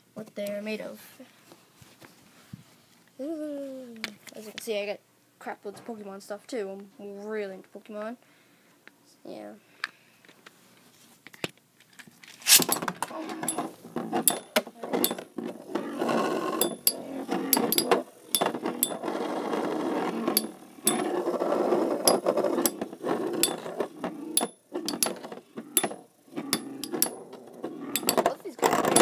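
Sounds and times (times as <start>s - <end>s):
metal tops clicking together: 12.4s - 13.7s, 14.3s - 15.2s, 16.6s - 19.0s, 20.3s - 21.0s, 24.4s - 25.2s, 25.8s - 27.2s, 28.0s - 28.3s
spinning tops scraping whir: 12.4s - 29.0s.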